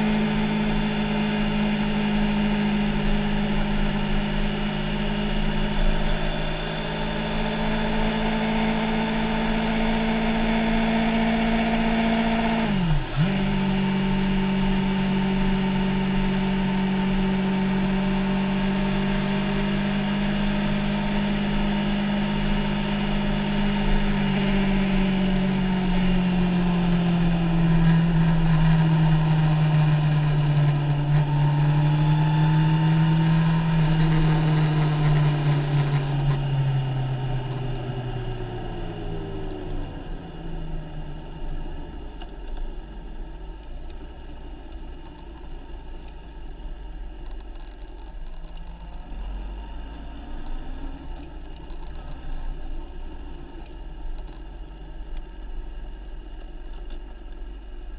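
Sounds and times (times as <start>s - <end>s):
motorcycle engine running: 0.0s - 57.9s.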